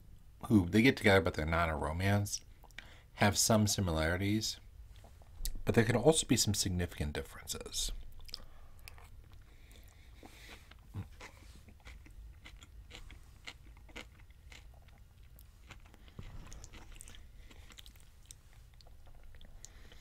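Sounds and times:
chewing with crunches: 0:08.0 - 0:20.0.

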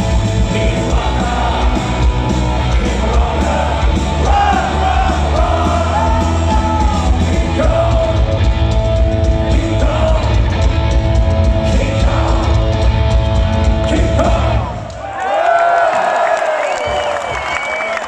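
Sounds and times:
live rock band playing: 0:00.0 - 0:14.8
person singing: 0:09.4 - 0:10.5.

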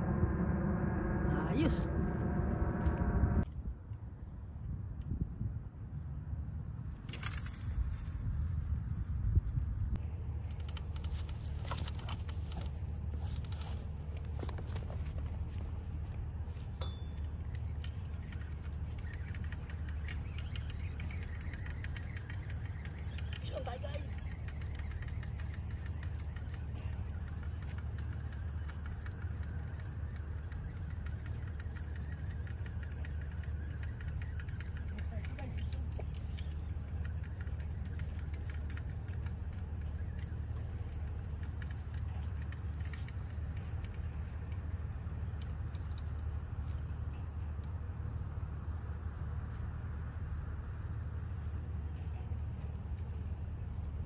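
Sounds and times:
high-pitched whine: 0:00.0 - 0:03.8
low rumble: 0:00.0 - 0:54.0
crickets chirping: 0:16.8 - 0:54.0.

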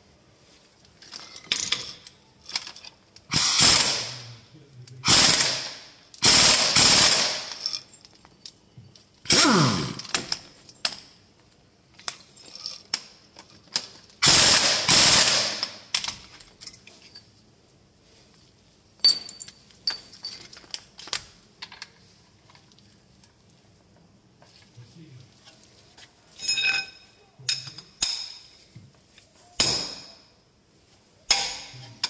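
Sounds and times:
impact wrench hammering: 0:31.3 - 0:31.8.

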